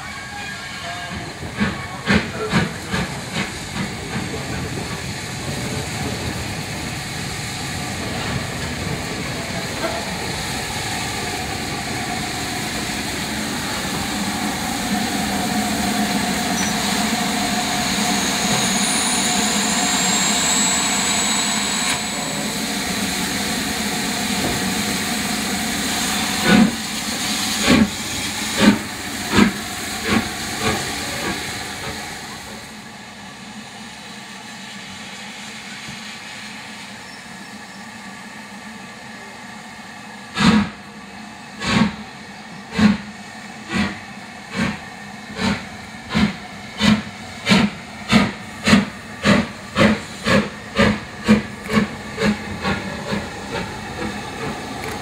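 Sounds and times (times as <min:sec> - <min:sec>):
steam hissing: 0:00.0 - 0:55.0
steam locomotive chuffs: 0:00.0 - 0:55.0
faint high whine: 0:16.5 - 0:23.7.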